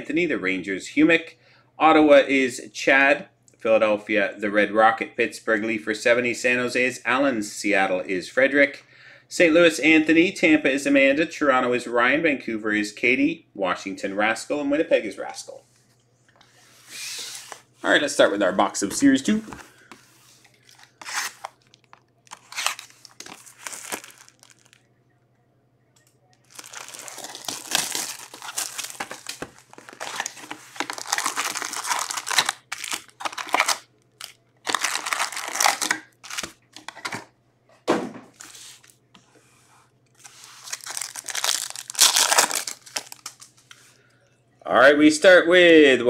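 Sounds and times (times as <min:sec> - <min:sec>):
faint low hum: 0:12.4 - 0:45.0
plastic wrappers crinkling and tearing: 0:20.4 - 0:24.9, 0:26.4 - 0:37.2, 0:40.2 - 0:43.8.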